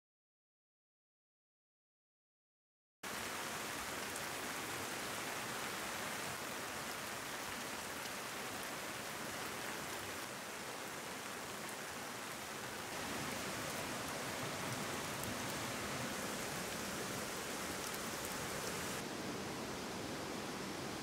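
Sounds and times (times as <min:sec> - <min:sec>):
steady rain in forest: 0:03.0 - 0:21.0
raindrop ticks: 0:17.6 - 0:18.8.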